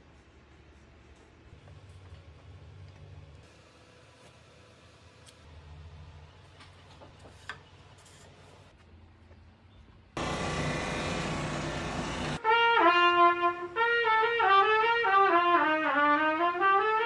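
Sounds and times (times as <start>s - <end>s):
solo trumpet melody: 12.4s - 17.0s.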